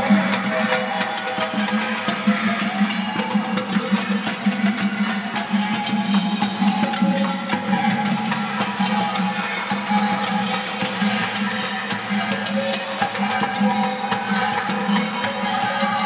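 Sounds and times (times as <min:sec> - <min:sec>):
sticks beating metal pots: 0:00.0 - 0:16.0.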